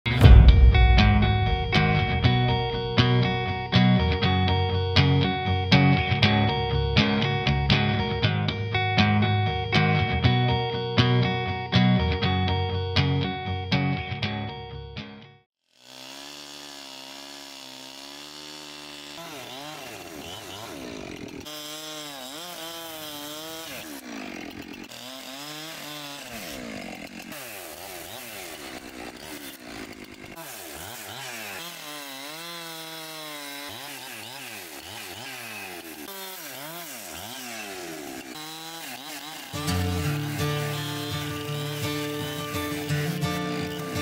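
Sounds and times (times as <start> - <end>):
chainsaw cutting wood: 15.6 - 44.0.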